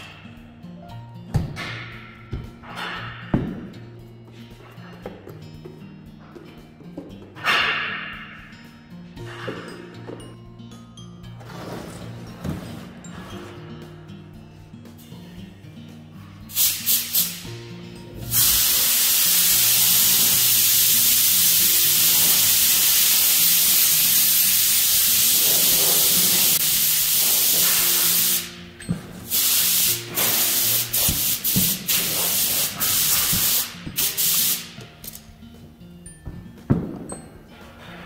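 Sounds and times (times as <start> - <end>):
background music: 0.0 - 38.0
spraying hiss: 16.5 - 17.6, 18.3 - 34.8.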